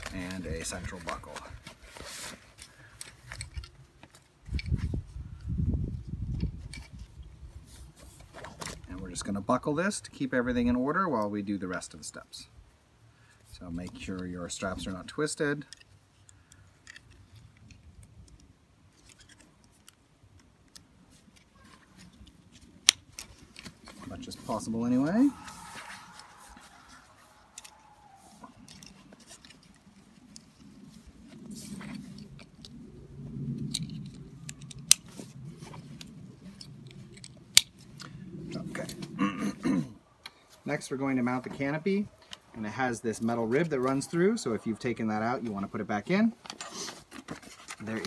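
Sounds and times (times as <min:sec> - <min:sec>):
rustling of straps: 0:00.0 - 0:09.4, 0:13.2 - 0:39.6, 0:40.2 - 0:48.0.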